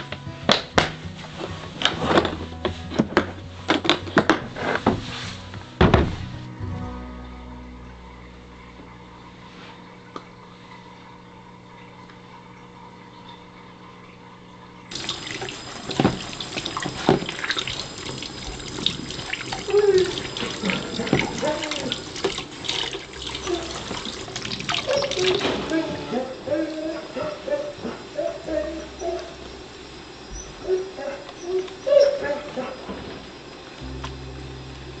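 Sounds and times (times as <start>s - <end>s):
faint steady hum: 0.0s - 35.0s
tap running into metal sink: 14.9s - 25.5s
water splashing over hands: 14.9s - 25.9s.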